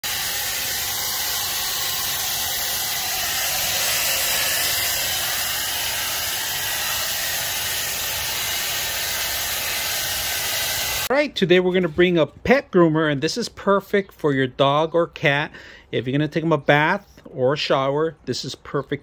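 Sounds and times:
pet blow dryer hissing: 0.0s - 11.1s.

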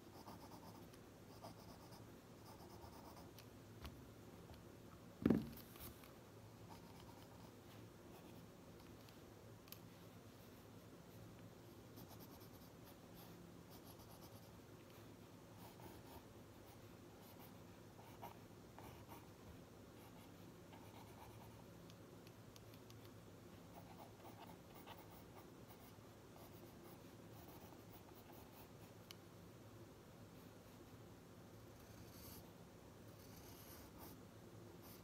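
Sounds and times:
pen scratching on paper: 0.0s - 3.3s, 6.7s - 7.5s, 15.6s - 19.3s, 20.0s - 21.6s, 23.7s - 28.7s, 33.2s - 34.2s
low steady hum: 0.0s - 35.0s.

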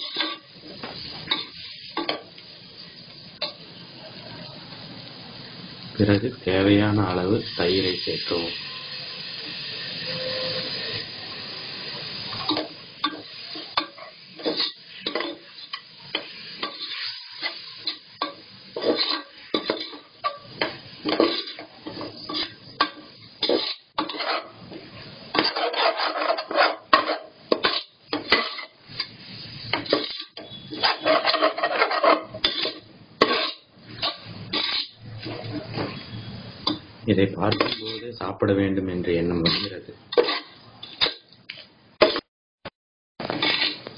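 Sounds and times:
metal ladle scraping a pot: 10.0s - 11.1s, 12.4s - 24.6s, 25.3s - 36.8s, 37.5s - 38.1s, 39.4s - 41.2s, 43.3s - 43.9s.

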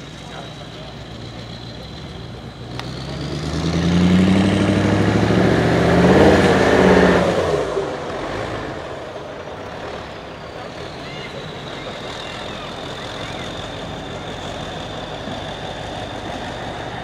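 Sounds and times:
diesel truck engine revving hard: 0.0s - 17.0s.

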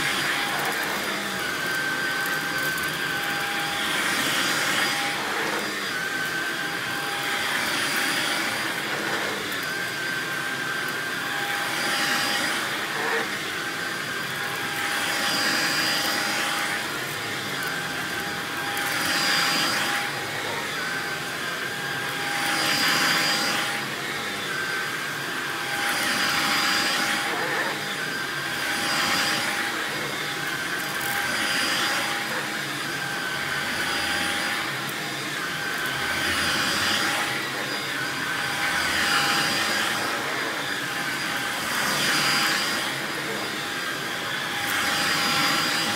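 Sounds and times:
vacuum cleaner on rug: 0.0s - 45.9s.

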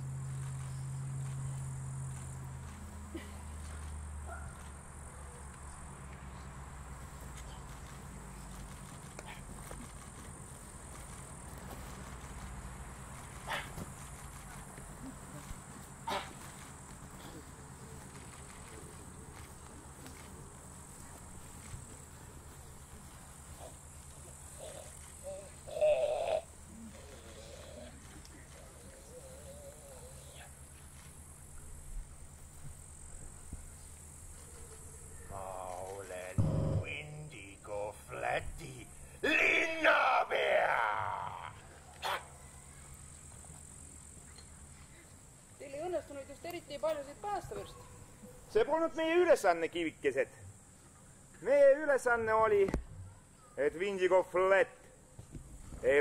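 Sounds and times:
steady low hum: 0.0s - 39.3s
insects chirring: 0.0s - 56.0s
low hum: 36.4s - 37.8s.

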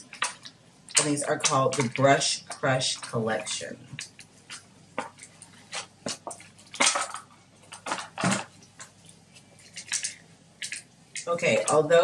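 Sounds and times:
plastic packaging clicks and crinkles: 3.9s - 11.8s.

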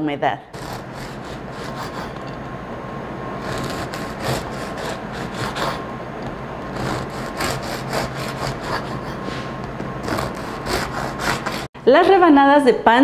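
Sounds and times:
knife sawing through crusty bread: 0.6s - 2.2s, 3.4s - 5.8s, 6.7s - 9.3s, 10.0s - 11.7s.

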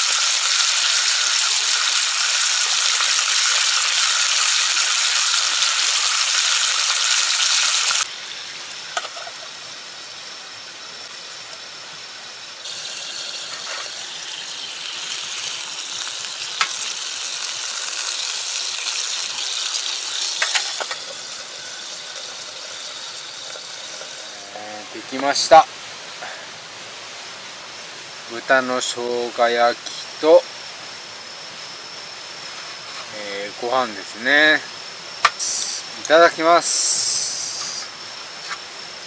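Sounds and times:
meat sizzling in a frying pan: 0.0s - 11.7s, 12.5s - 25.6s.

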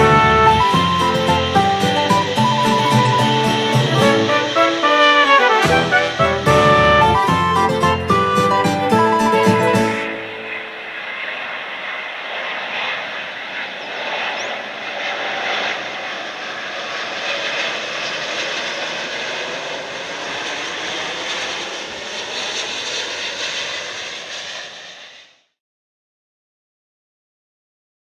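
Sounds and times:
jet engine rush: 0.0s - 25.4s.

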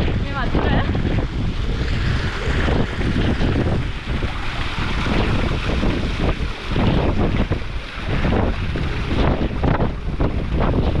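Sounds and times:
strong wind buffeting microphone: 0.0s - 11.0s.

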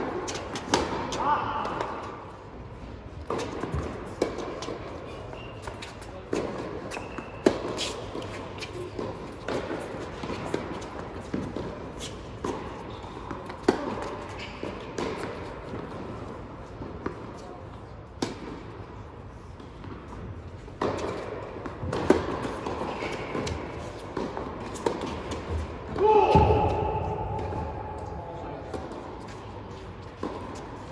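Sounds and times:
tennis ball bouncing: 0.0s - 1.9s, 3.2s - 5.0s, 5.6s - 17.4s, 18.2s - 18.6s, 19.6s - 25.7s, 30.2s - 30.9s
racket hitting tennis ball: 0.0s - 2.2s, 3.2s - 17.4s, 18.1s - 18.7s, 19.6s - 29.5s, 30.2s - 30.9s.

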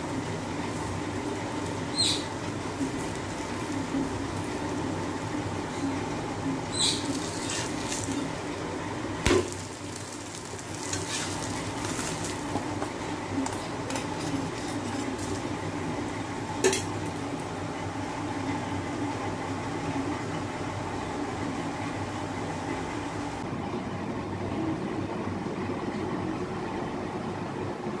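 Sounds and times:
omelette sizzling on griddle: 0.0s - 23.4s.

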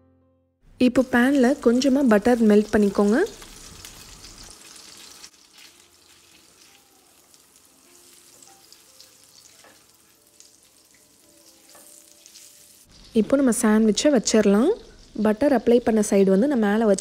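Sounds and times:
butter sizzling in a pan: 0.8s - 17.0s.

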